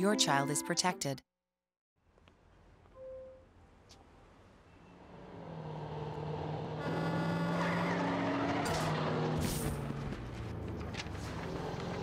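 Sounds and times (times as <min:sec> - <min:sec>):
truck engine whine: 0:04.6 - 0:12.0.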